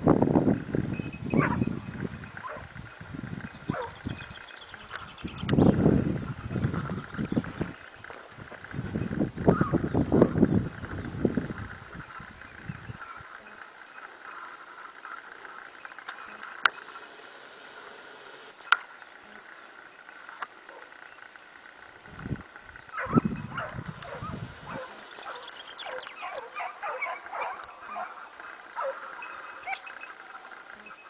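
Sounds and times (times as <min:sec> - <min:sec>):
hunting dogs yelping and baying: 0:01.3 - 0:02.8, 0:03.6 - 0:04.9, 0:20.7 - 0:21.1, 0:22.8 - 0:31.0.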